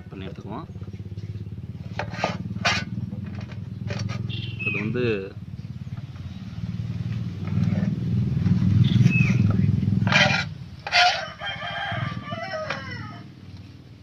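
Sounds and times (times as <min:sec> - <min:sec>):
low motor-like rumble: 0:00.0 - 0:14.0
rooster crowing: 0:10.9 - 0:13.4.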